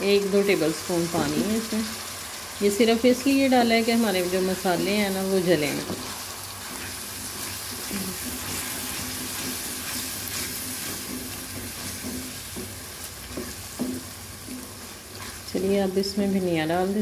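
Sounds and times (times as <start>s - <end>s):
vegetables sizzling in oil: 0.0s - 17.0s
spatula scraping a pan: 5.9s - 15.6s.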